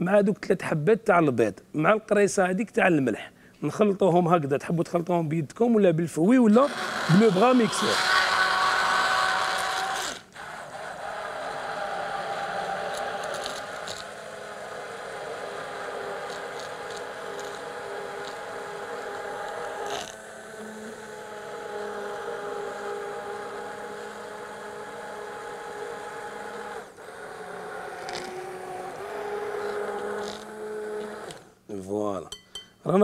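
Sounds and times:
stick blender motor whine: 6.4 - 31.6.

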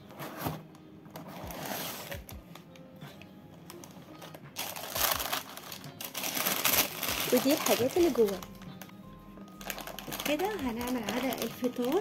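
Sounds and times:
faint background music: 0.0 - 12.0
tissue paper rustling: 1.2 - 2.3, 3.7 - 8.8, 9.5 - 12.0.

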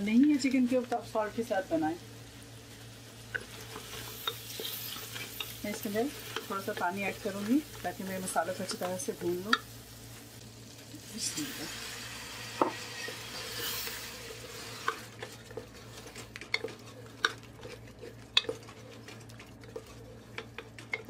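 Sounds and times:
water hissing and sizzling: 0.0 - 16.6
spatula scraping pot: 12.5 - 21.0.

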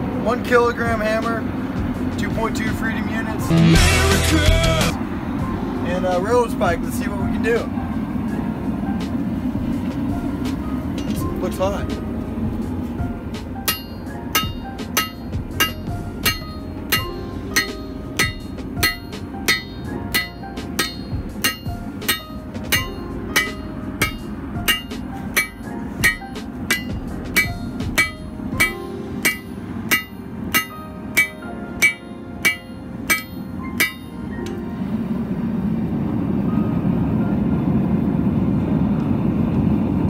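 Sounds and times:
hammer striking metal on anvil: 11.0 - 11.4, 13.4 - 34.6.

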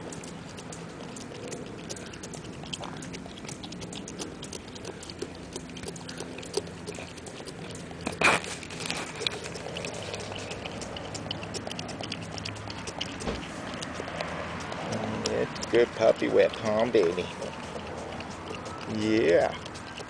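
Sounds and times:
dog licking wet clicks: 0.0 - 20.0.

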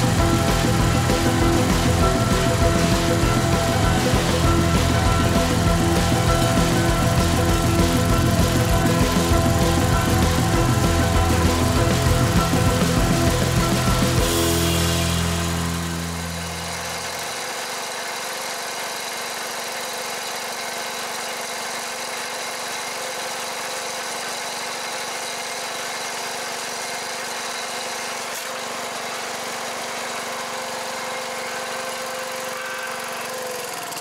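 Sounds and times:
small gasoline engine running: 0.0 - 34.0.

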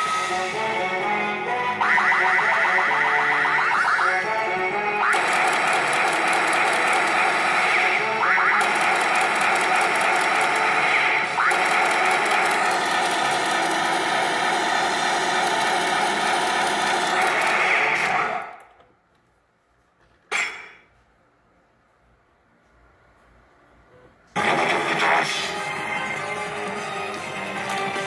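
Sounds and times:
electronic sound effects: 1.5 - 18.4.

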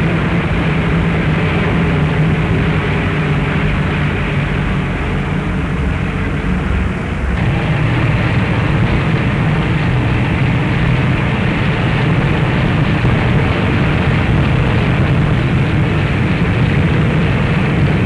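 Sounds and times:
drone of massed engines: 0.0 - 18.0
heavy hiss: 7.3 - 17.7.

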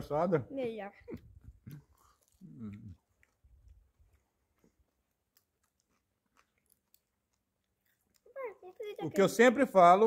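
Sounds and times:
faint chewing: 0.9 - 9.3
faint mouth clicks: 1.1 - 8.4.

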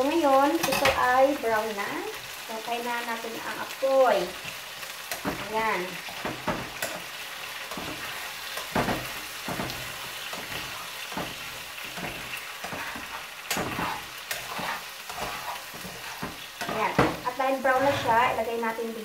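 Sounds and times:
beef sizzling in oil: 0.0 - 19.0
metal tongs scraping pan: 0.3 - 1.1, 4.3 - 18.5.

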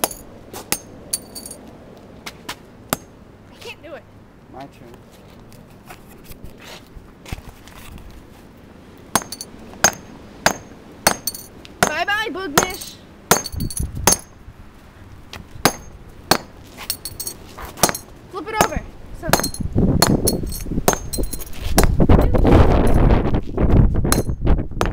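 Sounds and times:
hammer knocking on asphalt: 9.2 - 12.0, 12.6 - 14.3.

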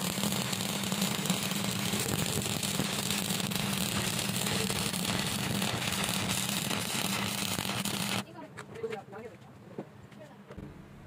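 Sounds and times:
welding arc crackling sizzle: 0.0 - 8.3.

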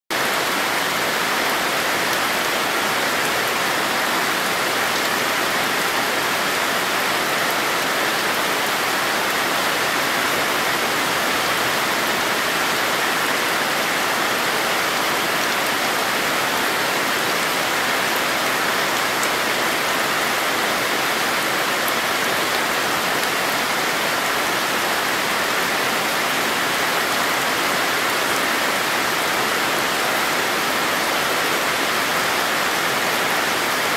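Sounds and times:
rain falling on leaves: 0.1 - 33.9.

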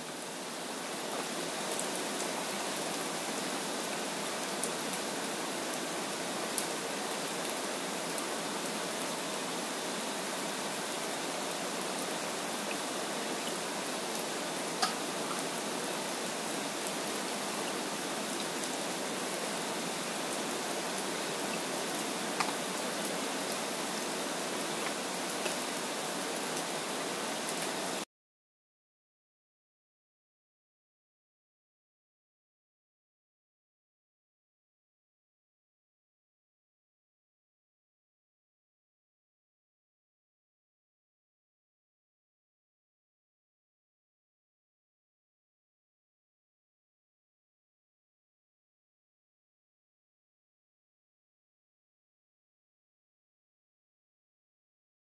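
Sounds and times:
steady rain falling: 0.0 - 28.1.

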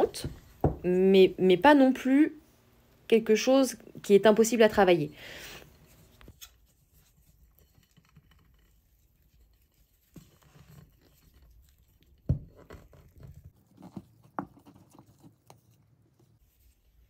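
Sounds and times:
small knocks and scrapes: 5.7 - 17.0.

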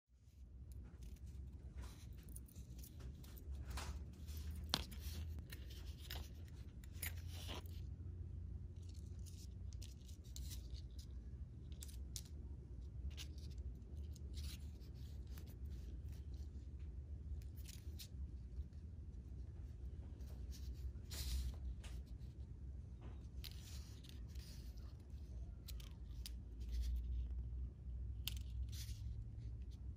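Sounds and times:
low steady hum: 0.1 - 29.9.

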